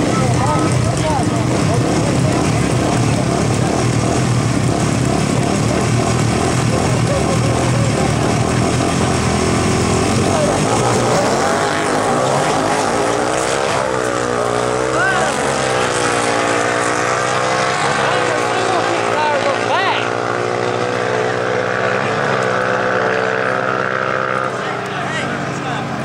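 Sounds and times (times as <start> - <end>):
golf cart engine revving: 0.0 - 26.0.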